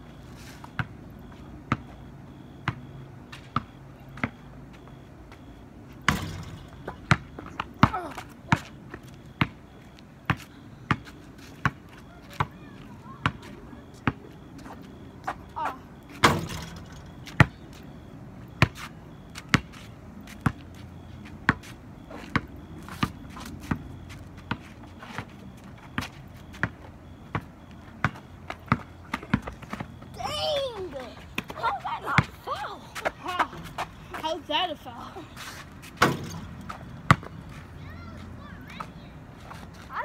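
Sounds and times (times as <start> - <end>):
basketball bouncing on asphalt: 0.7 - 34.9, 35.5 - 40.0
loud impact with ringing: 6.0 - 7.4, 16.2 - 17.2, 36.0 - 36.5.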